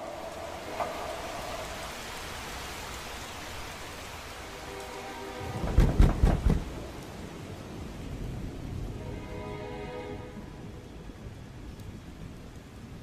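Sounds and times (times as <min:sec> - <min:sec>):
steady rain: 0:00.0 - 0:13.0
thunderclap with rumble and cracks: 0:05.4 - 0:09.0, 0:10.5 - 0:13.0.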